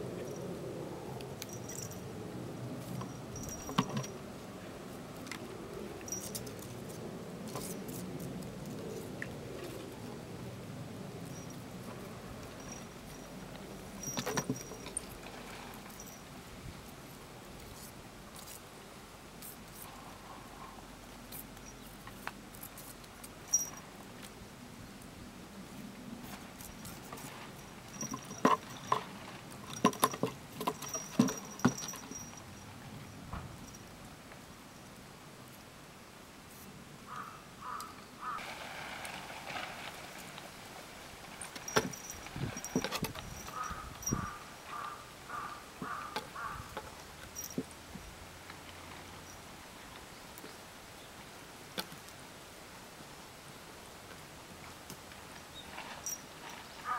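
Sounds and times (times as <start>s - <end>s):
faint ticks and rustles: 11.2s - 35.6s, 53.8s - 56.9s
crow cawing: 37.1s - 38.4s, 43.6s - 46.7s.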